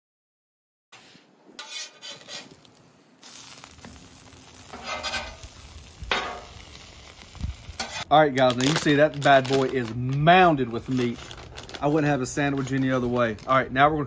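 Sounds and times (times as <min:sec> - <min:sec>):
metal spatula scraping griddle: 0:01.0 - 0:02.8, 0:04.6 - 0:08.1
sandwiches sizzling on griddle: 0:01.6 - 0:09.4.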